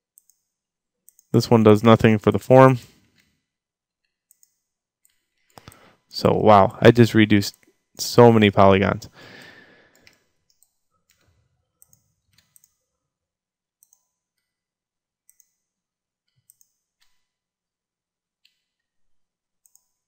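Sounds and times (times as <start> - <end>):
faint computer mouse clicks: 4.0 - 5.8, 9.4 - 12.8, 13.8 - 14.5, 15.3 - 15.6, 16.3 - 17.2, 19.6 - 19.9.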